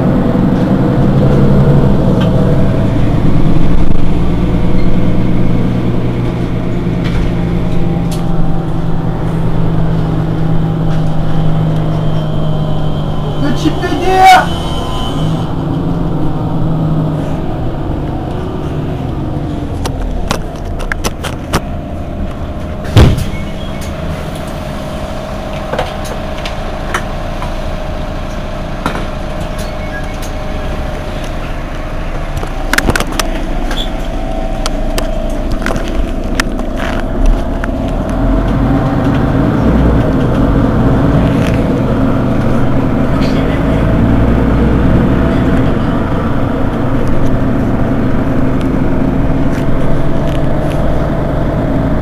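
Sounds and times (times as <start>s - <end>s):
bus engine idling: 0.0s - 52.0s.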